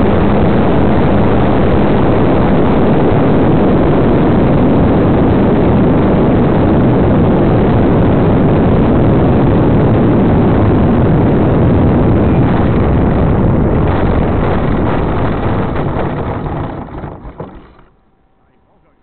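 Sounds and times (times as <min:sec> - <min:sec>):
airflow rushing over microphone: 0:00.0 - 0:19.0
model airplane motor and propeller: 0:12.0 - 0:19.0.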